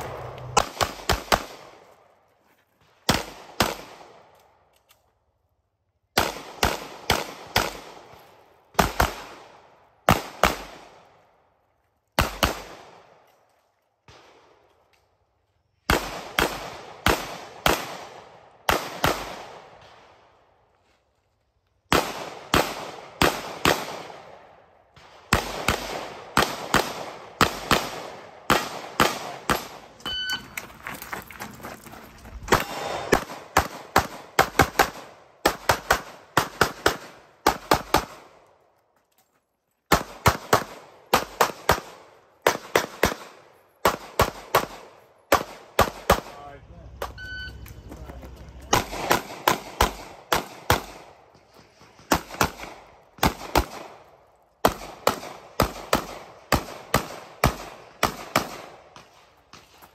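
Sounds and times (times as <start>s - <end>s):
pistol shots echoing: 0.0s - 1.9s, 6.1s - 11.1s, 12.2s - 13.2s, 15.9s - 20.2s, 21.9s - 30.0s, 32.5s - 38.4s, 39.9s - 46.4s, 48.7s - 59.3s.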